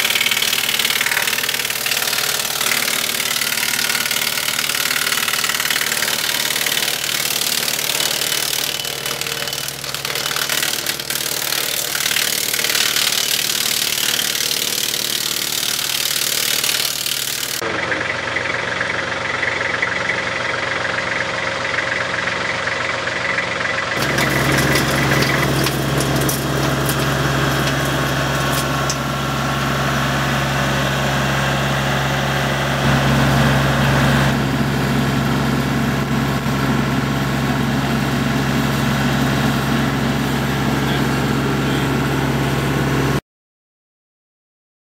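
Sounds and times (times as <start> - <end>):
tractor engine driving wood chipper: 0.0 - 43.2.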